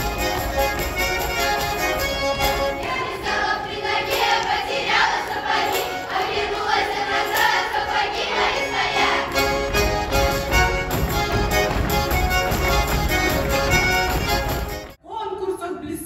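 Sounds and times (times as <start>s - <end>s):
accordion: 0.0s - 15.0s
folk chorus singing: 1.4s - 10.1s.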